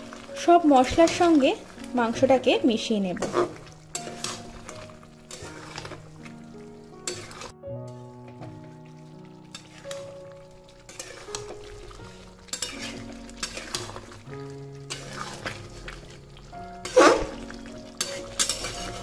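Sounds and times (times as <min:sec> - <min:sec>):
soft background music: 0:00.0 - 0:19.0
soft sizzle: 0:00.0 - 0:19.0
spoon scraping metal pan: 0:03.2 - 0:06.1, 0:07.0 - 0:07.5, 0:09.5 - 0:10.1, 0:10.9 - 0:14.2, 0:14.8 - 0:16.0, 0:16.8 - 0:19.0.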